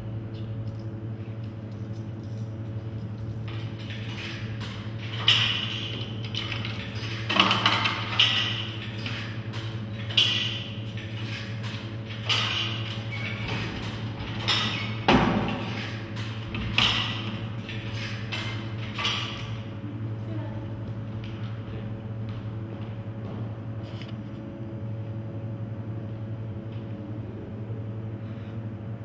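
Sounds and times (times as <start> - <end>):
steady low hum: 0.0 - 29.0
hand thumping vending machine: 3.0 - 19.8.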